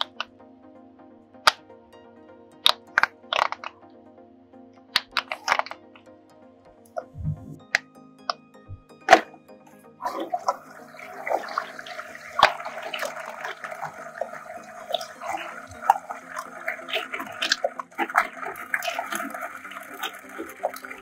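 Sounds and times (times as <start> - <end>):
plastic balls clicking: 2.7 - 3.8, 5.0 - 5.8
water running into toilet bowl: 10.0 - 21.0.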